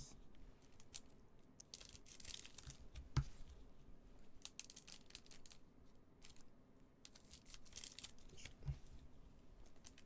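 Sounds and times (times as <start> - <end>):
wrapper crinkling: 1.7 - 2.8, 4.4 - 5.6, 7.0 - 8.5.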